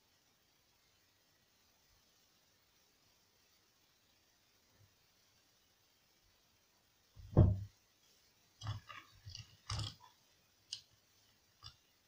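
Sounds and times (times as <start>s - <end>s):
dull thump: 7.2s - 7.7s.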